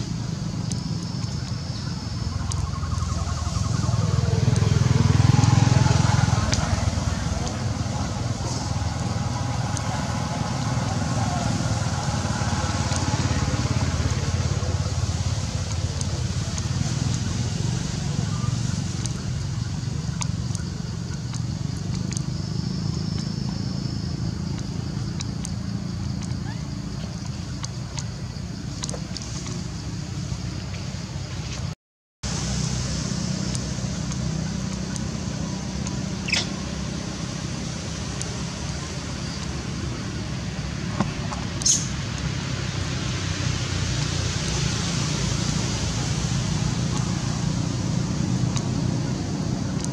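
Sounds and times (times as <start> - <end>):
engine running steadily: 0.0 - 31.7, 32.3 - 49.9
monkey squeak: 36.2 - 36.6.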